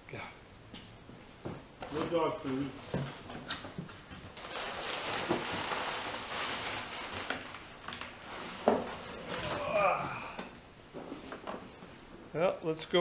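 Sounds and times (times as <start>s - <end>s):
packing paper rustling: 1.8s - 10.0s.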